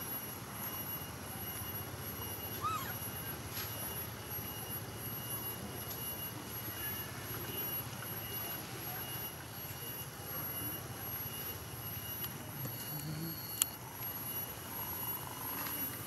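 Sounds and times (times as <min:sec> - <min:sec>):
squeaky chirp: 0:02.3 - 0:03.4.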